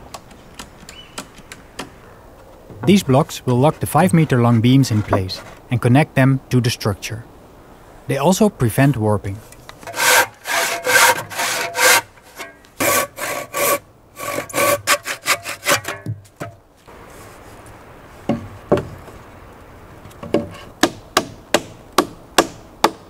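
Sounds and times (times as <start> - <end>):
handsaw cutting wood: 9.8 - 15.9.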